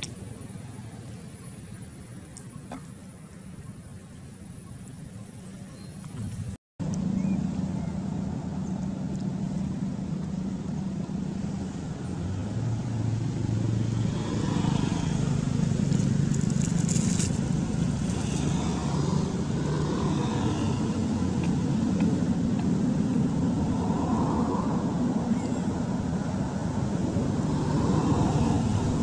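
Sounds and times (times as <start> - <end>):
low motor rumble: 0.0 - 29.0.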